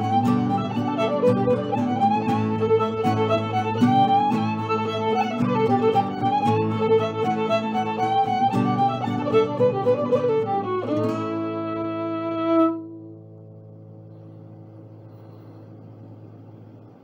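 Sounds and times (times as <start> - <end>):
fiddle and strings playing a reel: 0.0 - 12.8
low sustained tone: 0.0 - 17.0.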